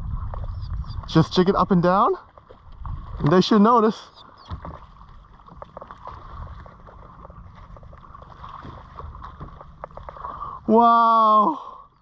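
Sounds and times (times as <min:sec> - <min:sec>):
wind rumble on microphone: 0:00.0 - 0:03.6, 0:04.4 - 0:10.7
water lapping against kayak hull: 0:00.0 - 0:12.0
small ticks and splashes: 0:02.1 - 0:10.5.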